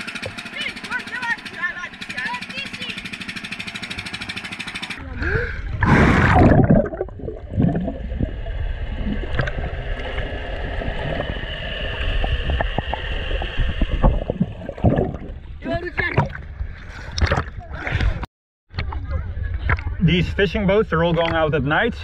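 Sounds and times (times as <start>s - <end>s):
small engine puttering: 0.0s - 5.2s
muffled underwater rumble: 5.0s - 20.2s
loud splash: 5.8s - 9.8s
underwater clicks: 9.3s - 11.4s, 17.1s - 17.6s.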